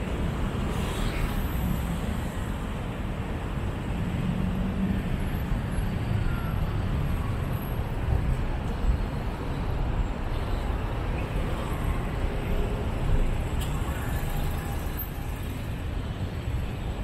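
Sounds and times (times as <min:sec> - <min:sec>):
road traffic rumble: 0:00.0 - 0:17.0.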